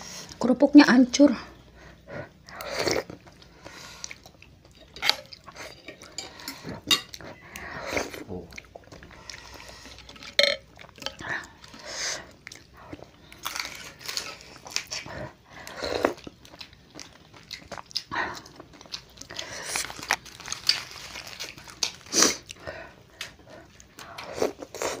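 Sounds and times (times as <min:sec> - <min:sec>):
chewing and crunching: 0:01.8 - 0:25.0
slurping noodles and broth: 0:02.5 - 0:04.2.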